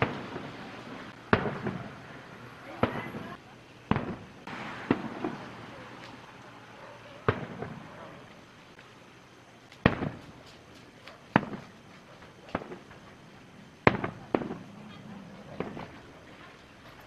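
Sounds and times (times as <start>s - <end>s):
firework shells booming: 0.0s - 6.3s, 7.2s - 8.4s, 9.7s - 10.6s, 11.2s - 17.0s
faint firework pops: 1.3s - 1.9s, 2.8s - 6.2s, 7.2s - 7.9s, 9.7s - 13.2s, 13.8s - 14.7s, 15.6s - 16.0s.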